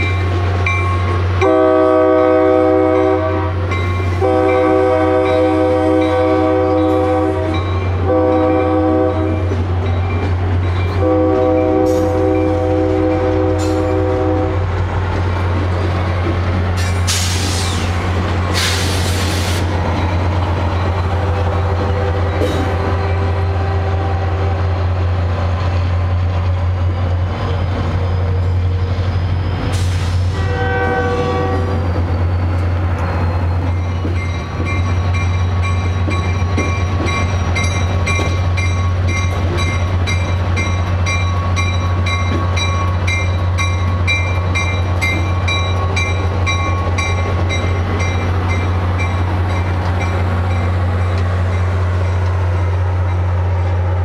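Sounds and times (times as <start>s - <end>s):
diesel locomotive drone: 0.0s - 54.0s
train horn blast: 1.4s - 9.6s, 11.0s - 14.7s, 21.3s - 24.8s, 30.1s - 31.8s.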